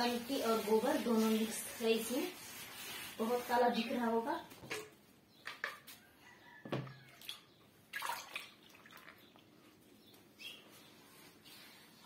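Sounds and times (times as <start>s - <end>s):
wet splashes and slaps: 7.2s - 9.2s.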